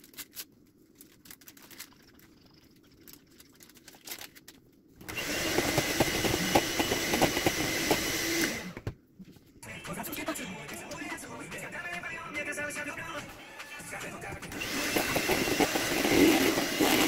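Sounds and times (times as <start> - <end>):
electric hand mixer whipping: 5.0 - 8.8, 14.5 - 17.0.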